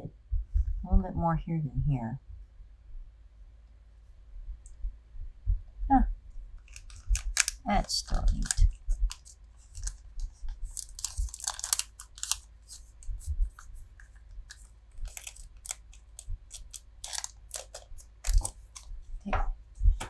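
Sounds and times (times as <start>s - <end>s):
cards scraping against wrapper: 6.6s - 18.9s
foil wrapper crinkling: 6.6s - 19.0s.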